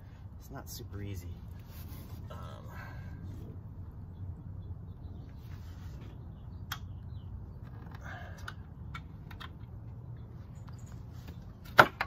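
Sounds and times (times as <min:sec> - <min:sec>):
low steady rumble: 0:00.0 - 0:11.7
scraping rustle: 0:01.5 - 0:02.4.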